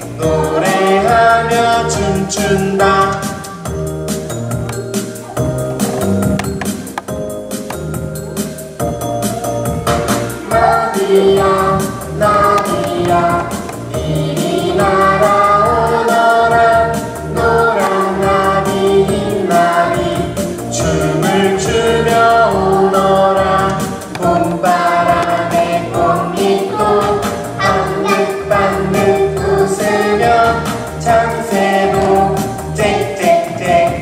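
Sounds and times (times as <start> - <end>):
children's choir singing: 0.0 - 3.7, 9.4 - 34.0
backing track with steady beat: 0.0 - 34.0.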